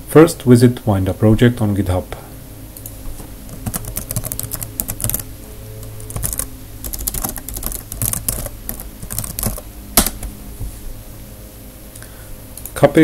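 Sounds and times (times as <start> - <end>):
computer keyboard typing: 3.5 - 10.2.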